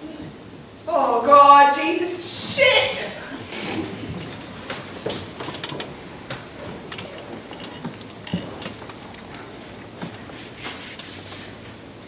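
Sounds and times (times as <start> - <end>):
faint steady hum: 0.0 - 12.0
people rustling: 3.1 - 12.0
small knocks and clicks: 4.1 - 11.3.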